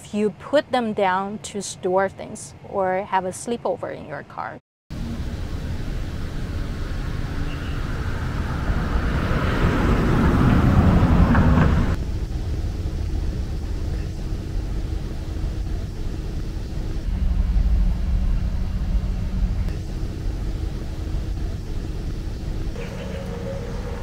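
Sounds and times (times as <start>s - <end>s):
car road rumble: 5.0s - 24.0s
faint electric hum: 12.0s - 24.0s.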